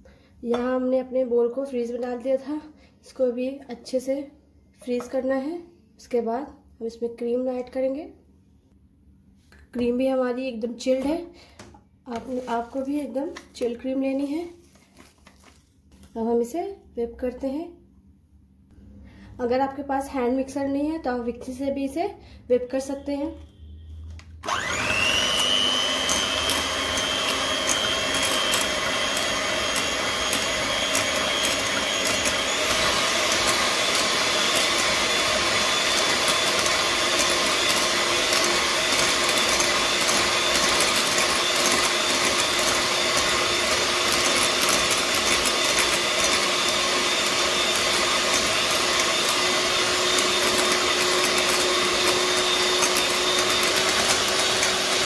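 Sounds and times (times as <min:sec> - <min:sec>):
beaters whipping cream in bowl: 0:24.4 - 0:55.0
electric hand mixer whirring: 0:24.4 - 0:55.0.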